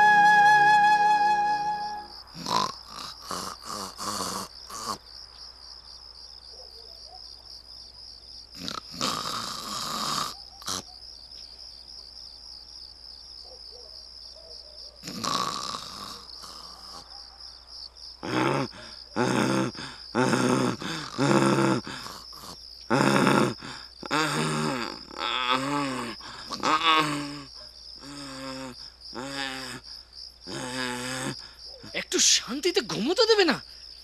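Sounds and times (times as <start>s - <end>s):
donkey braying: 0.0s - 2.5s
crickets chirping: 0.0s - 34.0s
cartoon man snoring: 2.4s - 5.0s, 8.6s - 10.8s, 15.0s - 17.0s, 18.2s - 29.8s, 30.5s - 31.5s.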